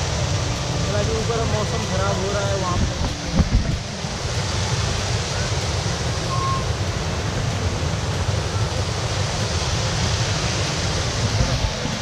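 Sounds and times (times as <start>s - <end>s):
wind buffeting microphone: 2.4s - 5.2s, 10.9s - 12.0s.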